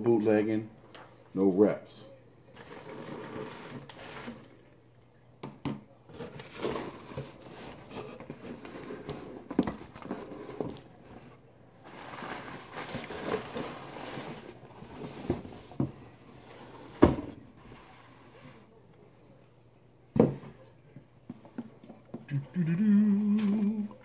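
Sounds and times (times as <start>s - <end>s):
cardboard rustling and scraping: 2.6s - 4.6s, 6.1s - 18.7s.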